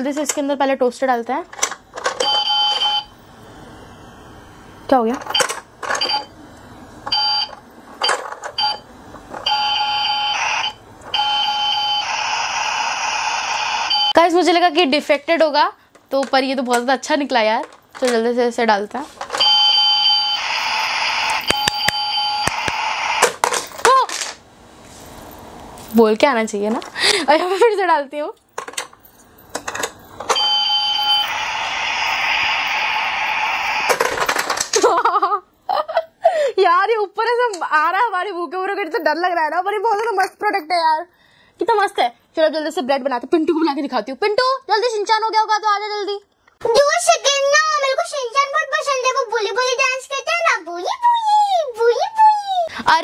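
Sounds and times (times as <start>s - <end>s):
toy long steady tone: 9.4s - 14.1s, 19.4s - 23.2s, 30.3s - 34.0s.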